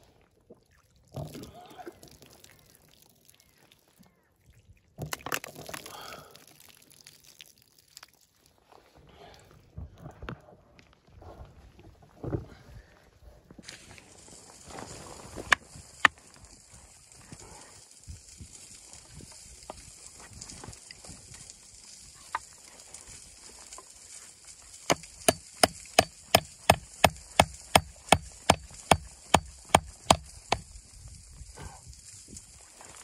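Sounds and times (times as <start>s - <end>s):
hatchet chopping wood: 24.9s - 30.7s.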